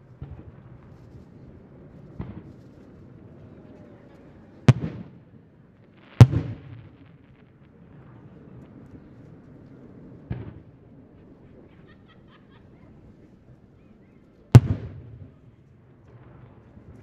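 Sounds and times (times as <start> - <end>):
firework bang: 4.7 - 5.2, 6.2 - 7.2, 14.6 - 15.4.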